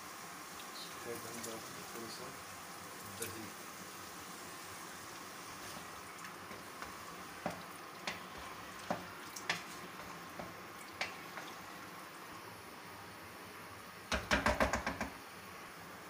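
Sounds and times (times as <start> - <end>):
low sizzle: 0.0 - 16.0
spatula knocking against pan: 6.5 - 11.5, 14.1 - 15.2.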